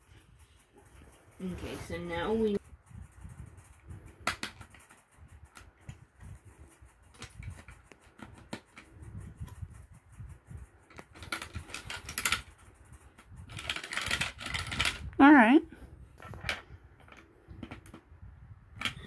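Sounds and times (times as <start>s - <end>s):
plastic bricks clicking: 13.5s - 15.0s.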